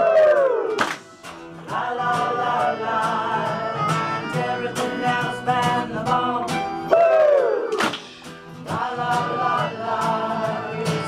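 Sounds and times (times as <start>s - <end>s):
strummed acoustic guitar: 0.7s - 11.0s.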